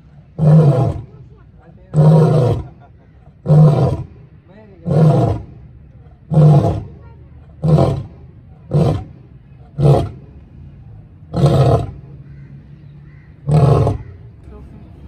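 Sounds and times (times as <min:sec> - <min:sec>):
lion roaring: 0:00.4 - 0:01.1, 0:01.9 - 0:02.8, 0:03.4 - 0:04.2, 0:04.8 - 0:05.6, 0:06.2 - 0:06.9, 0:07.6 - 0:09.1, 0:09.7 - 0:10.2, 0:11.3 - 0:12.0, 0:13.4 - 0:14.2.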